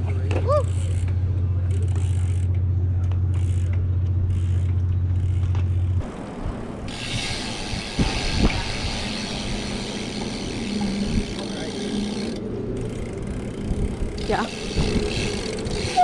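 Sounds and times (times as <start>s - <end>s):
bike wheels rolling on pavement: 0.0s - 16.0s
wind rush on camera: 6.0s - 11.4s, 12.5s - 16.0s.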